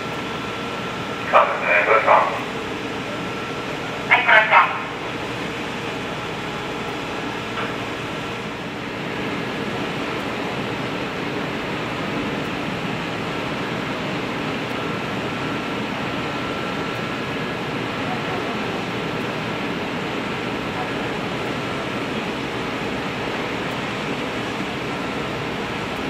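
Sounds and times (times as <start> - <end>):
ship engines droning: 0.0 - 26.0.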